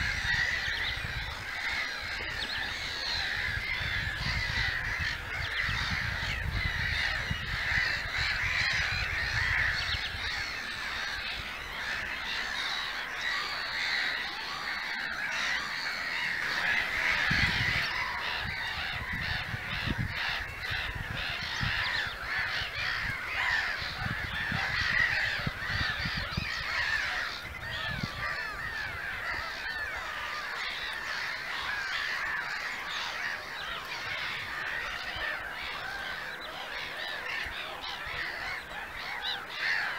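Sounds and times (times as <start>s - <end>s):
wind rumbling on microphone: 0.0s - 14.0s, 15.8s - 32.6s
gulls calling: 0.0s - 39.9s.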